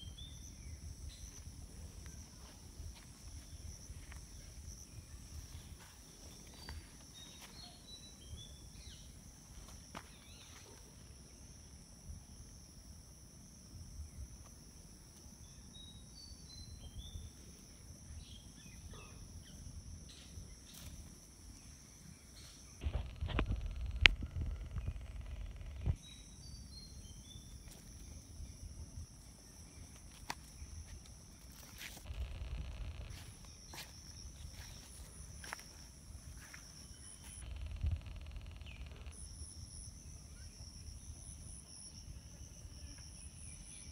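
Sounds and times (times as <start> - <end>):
insects droning: 0.0 - 43.9
low rumble: 32.1 - 33.2.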